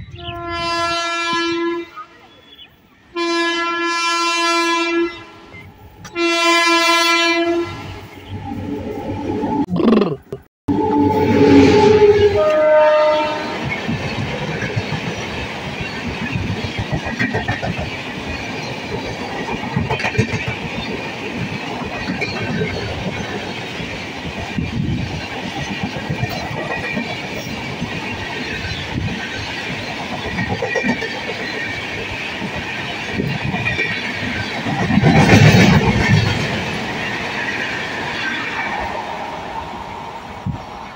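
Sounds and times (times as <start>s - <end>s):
train rolling rumble and rattle: 10.9s - 40.9s
wheels clacking over rail joints: 13.6s - 37.8s.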